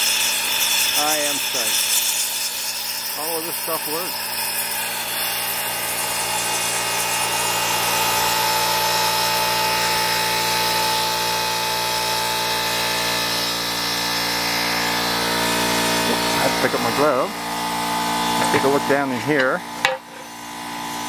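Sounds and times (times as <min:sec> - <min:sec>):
gas burner flame roaring: 0:13.6 - 0:20.9.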